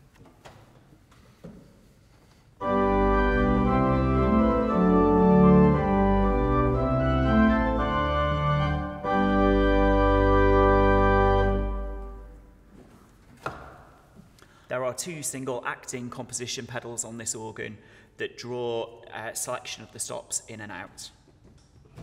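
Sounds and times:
pipe organ chords: 2.6s - 12.6s.

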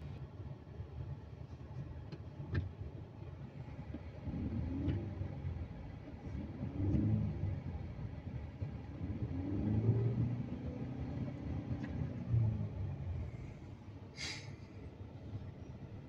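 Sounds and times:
car engine revving: 4.2s - 13.7s.

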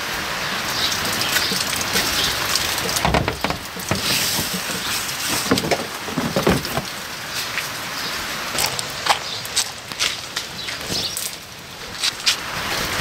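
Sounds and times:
rain hiss: 0.0s - 13.0s
cardboard and cans rummaged in bin: 1.5s - 7.0s.

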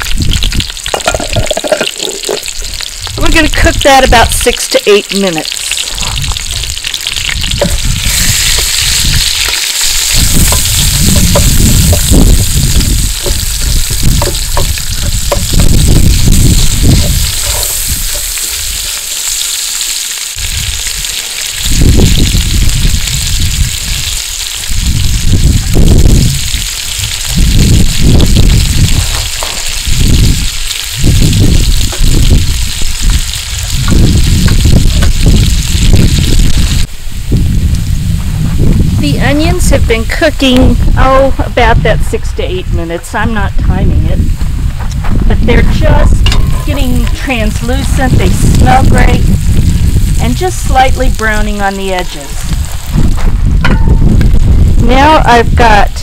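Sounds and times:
low rumbling gusts: 0.0s - 56.0s
onion sizzling in oil: 0.0s - 56.0s
tongs stirring: 16.6s - 19.0s.

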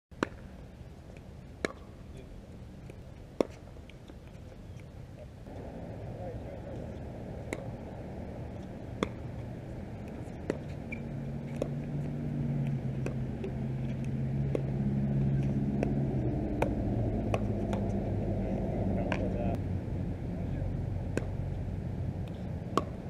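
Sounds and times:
engine humming: 5.3s - 23.0s.

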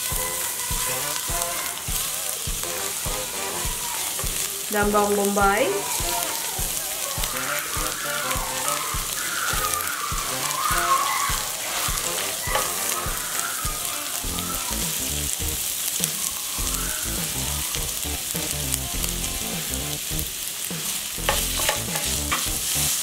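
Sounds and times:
onions sizzling in hot oil: 0.0s - 23.0s
spatula knocking against pan: 21.3s - 22.5s.

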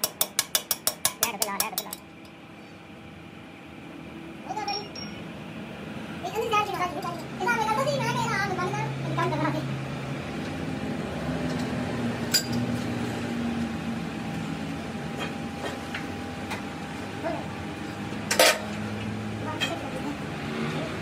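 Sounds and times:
workshop hum: 0.0s - 21.0s.

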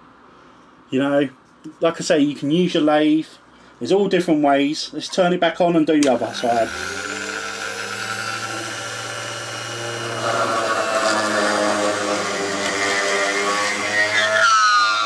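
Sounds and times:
drill press boring through cork: 6.0s - 15.0s.

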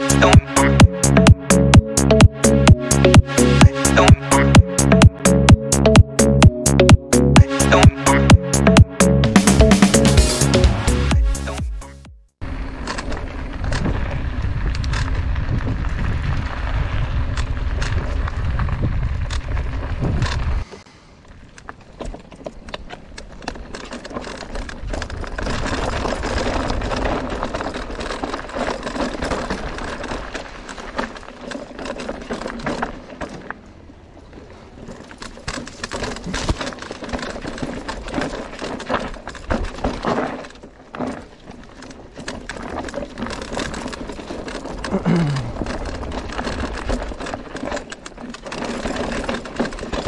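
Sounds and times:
tyres crunching on loose stones: 0.0s - 50.0s
bike clicking and rattling: 12.4s - 50.0s.

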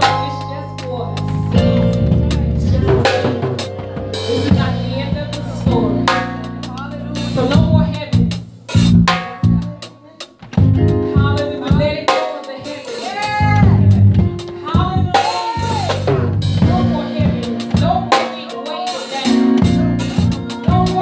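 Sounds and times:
sustained chords: 0.0s - 7.9s
bass line: 0.0s - 9.8s, 10.6s - 12.0s, 13.2s - 18.2s, 19.4s - 21.0s
drum kit hits: 0.0s - 9.8s, 10.4s - 21.0s.

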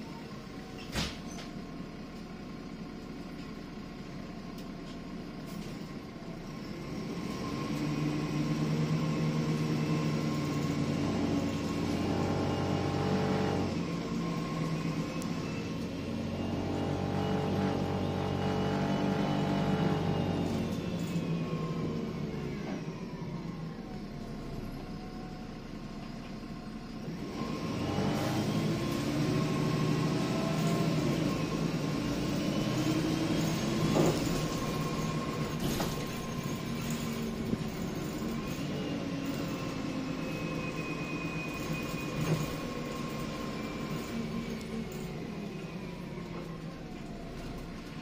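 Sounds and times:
bus diesel engine accelerating: 0.0s - 48.0s
bus body rattles: 0.6s - 1.8s, 32.6s - 40.2s.

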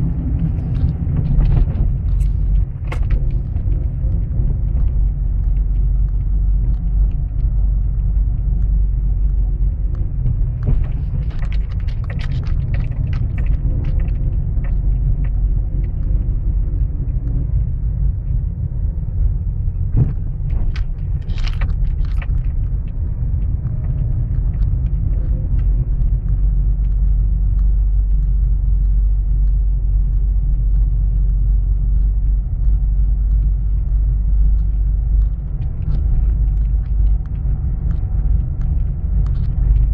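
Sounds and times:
car rumbling over paving: 0.0s - 39.9s
scattered clicks and rattles: 0.0s - 39.9s.

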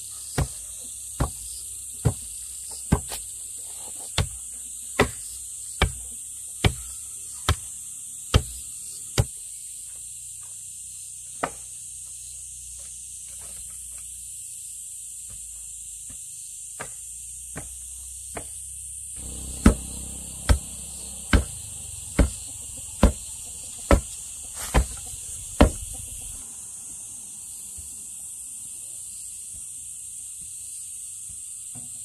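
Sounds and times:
insects droning: 0.0s - 32.0s.

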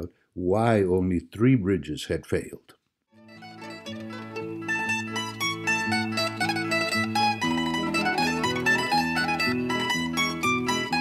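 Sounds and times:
plucked-string ensemble music: 3.2s - 11.0s.

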